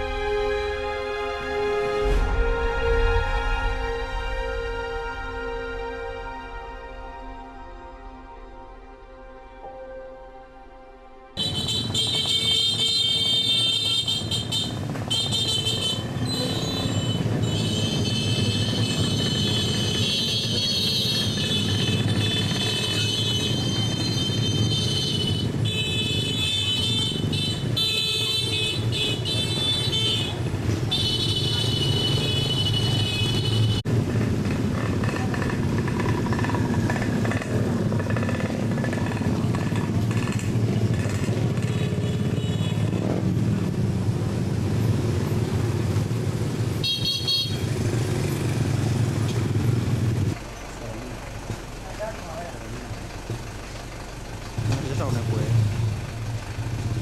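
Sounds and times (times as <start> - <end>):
vehicle horns: 11.4 - 33.9, 40.6 - 43.3, 46.8 - 48.0
motorcycles and cars passing: 11.4 - 57.0.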